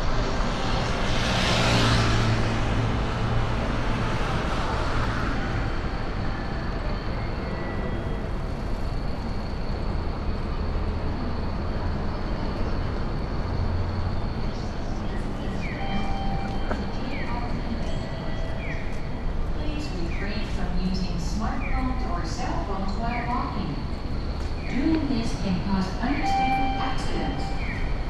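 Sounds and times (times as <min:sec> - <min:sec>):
vehicle passing close by: 0:00.0 - 0:05.7
traffic hum: 0:00.0 - 0:28.0.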